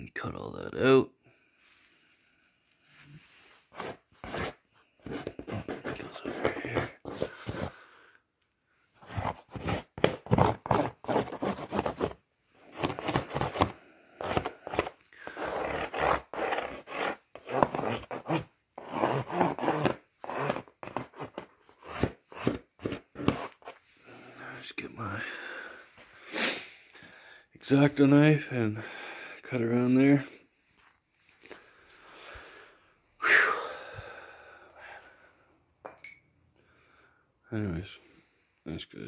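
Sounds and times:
knife slicing cardboard: 3.7s - 7.7s, 9.0s - 23.8s.

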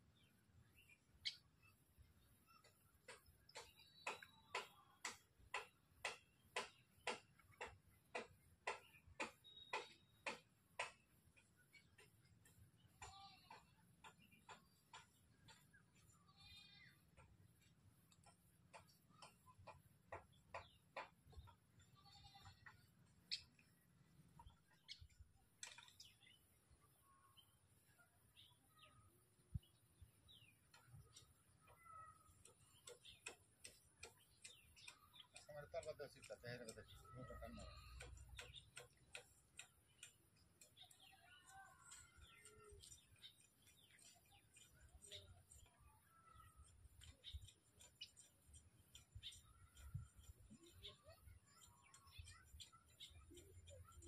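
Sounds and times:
bird chirps: 0.0s - 54.0s
faint regular ticking: 2.4s - 26.4s, 30.2s - 54.0s.

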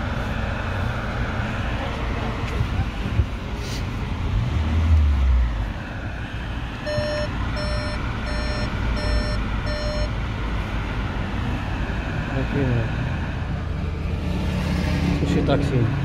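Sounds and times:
parking sensor beeping: 6.8s - 10.2s.

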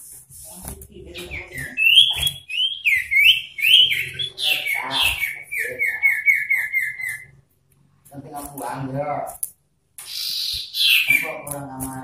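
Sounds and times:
bird singing whistled notes: 1.1s - 7.4s.

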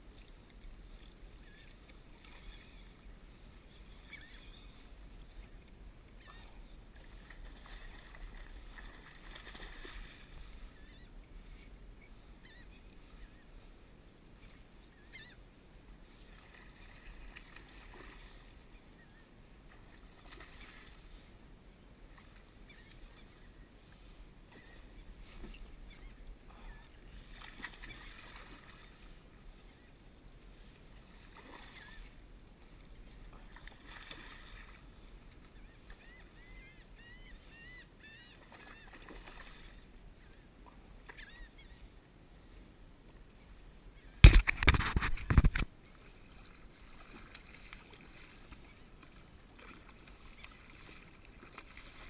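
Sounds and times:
splashing and knocking at microphone: 44.2s - 45.7s.

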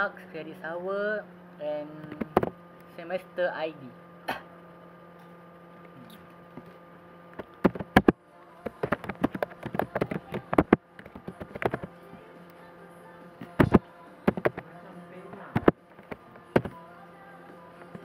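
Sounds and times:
electrical hum: 0.0s - 18.0s
keyboard typing: 7.6s - 11.9s, 13.5s - 14.6s, 15.4s - 16.8s.

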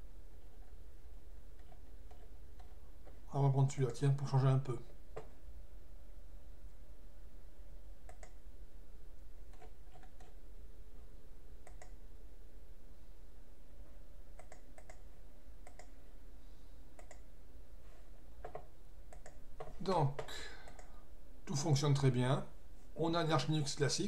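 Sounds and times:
low steady hum: 0.0s - 24.0s
mouse and keyboard clicks: 8.1s - 8.4s, 9.5s - 10.4s, 11.6s - 12.0s, 14.4s - 15.0s, 15.6s - 15.9s, 17.0s - 17.3s, 18.4s - 19.7s.

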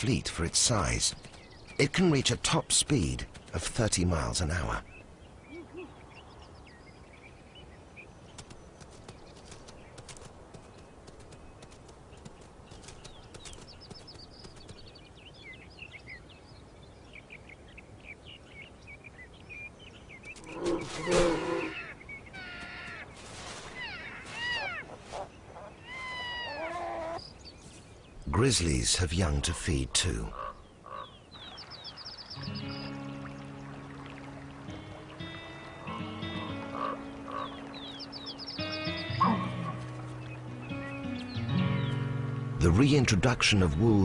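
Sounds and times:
small birds chirping: 0.0s - 44.0s
elk calling: 32.4s - 42.0s.

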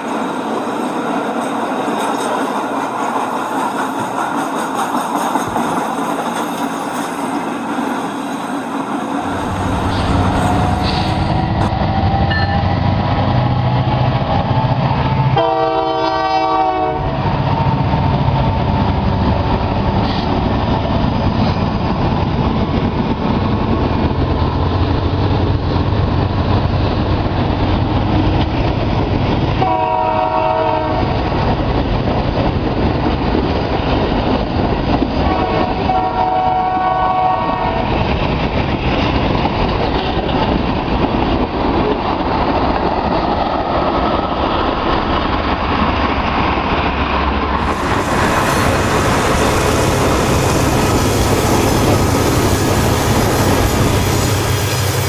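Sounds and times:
locomotive horn blasts: 15.3s - 17.1s, 29.6s - 31.1s, 35.2s - 37.8s
wheel noise on track: 16.2s - 55.0s.

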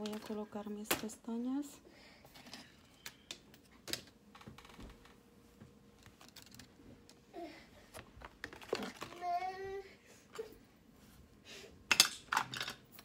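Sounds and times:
faint steady hum: 0.0s - 13.0s.

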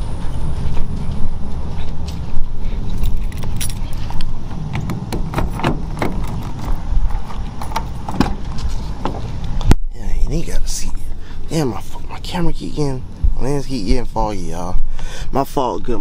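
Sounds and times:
wind rumble on microphone: 0.0s - 15.0s
small metallic jingles: 2.9s - 4.2s.

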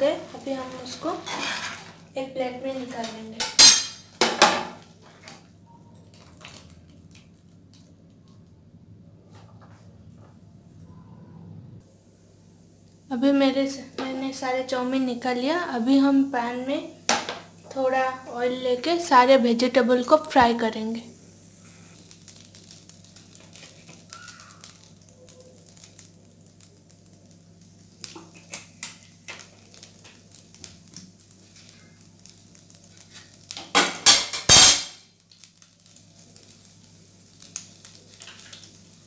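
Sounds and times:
kitchenware clattering: 1.0s - 2.0s, 3.0s - 4.8s
oil ticking in a pan: 22.2s - 31.4s.

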